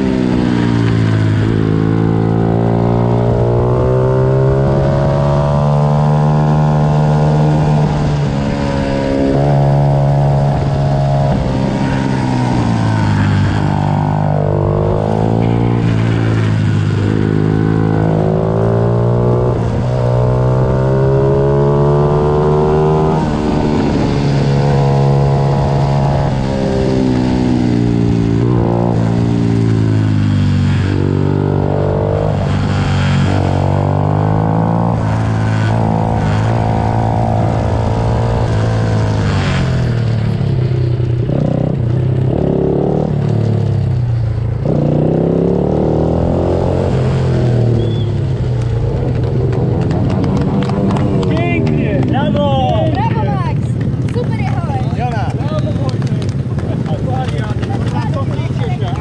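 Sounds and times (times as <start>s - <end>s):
pitbike engines racing: 0.0s - 59.0s.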